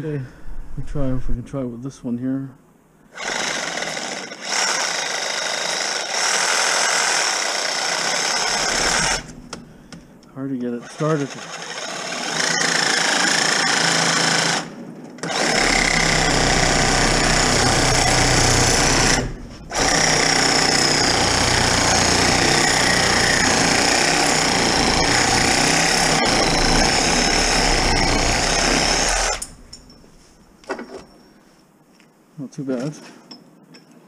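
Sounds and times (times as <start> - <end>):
reciprocating saw cutting metal: 3.2 - 9.4, 10.8 - 30.0.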